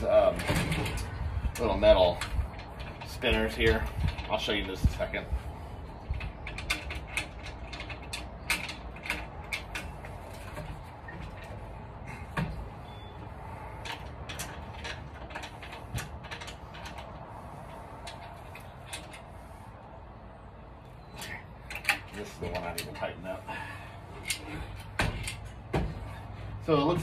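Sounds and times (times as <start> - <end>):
metal parts clicking and knocking: 6.0 - 19.5, 21.1 - 23.1, 24.2 - 26.0.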